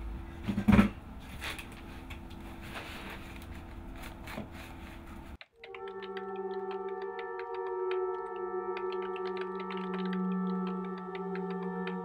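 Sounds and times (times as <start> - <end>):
low room hum: 0.0 - 5.4.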